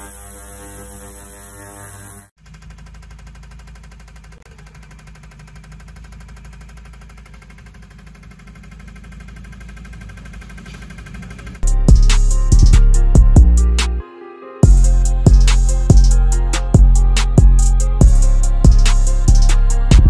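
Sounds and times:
fuel injectors clicking: 2.4s - 11.7s
loud music with drum beats: 11.6s - 13.9s, 14.6s - 20.0s.

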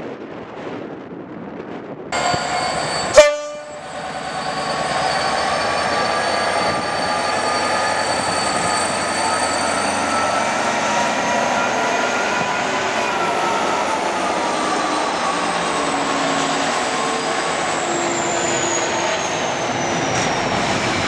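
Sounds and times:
high ringing tones: 2.2s - 14.4s
diesel locomotive engine running: 2.2s - 21.0s
train horn toot: 3.0s - 3.9s.

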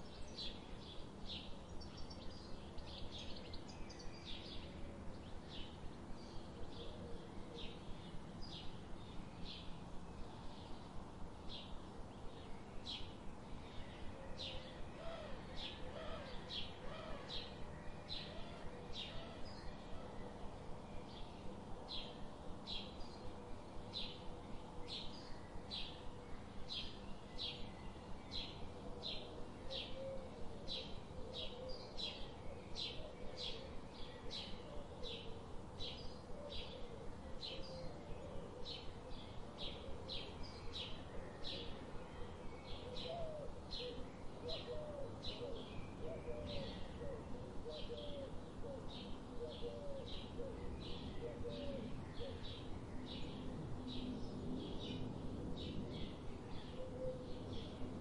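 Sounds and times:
lower wavering bird calls: 12.7s - 54.2s, 56.1s - 58.0s.

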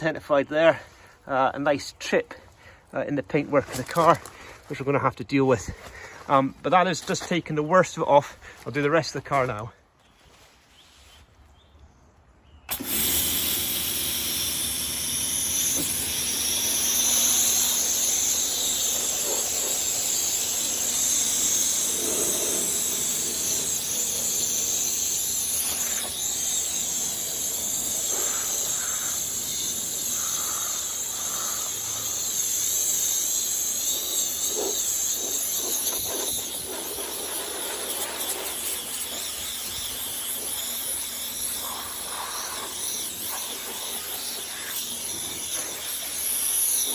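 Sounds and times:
pressure washer spraying car: 12.7s - 46.9s.

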